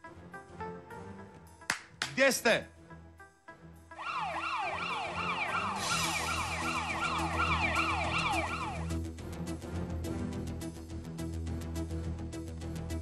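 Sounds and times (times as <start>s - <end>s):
background music: 0.0s - 13.0s
wailing siren sound effect: 4.0s - 9.0s.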